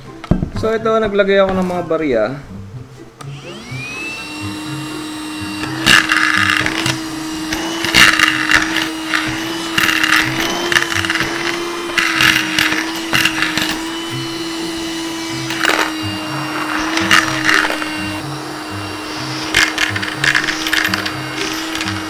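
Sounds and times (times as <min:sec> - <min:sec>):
handheld vacuum motor whine: 0:03.2 - 0:22.0
coins rattling in vacuum: 0:05.8 - 0:14.3, 0:19.1 - 0:22.0.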